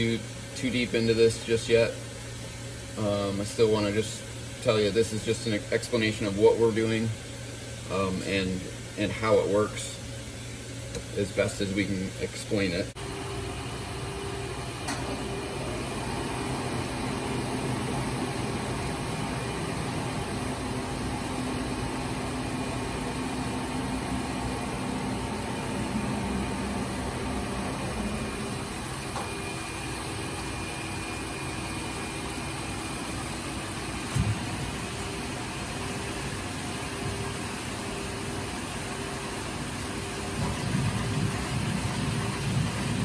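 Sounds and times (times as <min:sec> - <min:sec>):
pump rushing hum: 0:00.0 - 0:43.0
fluid churning: 0:40.1 - 0:43.0.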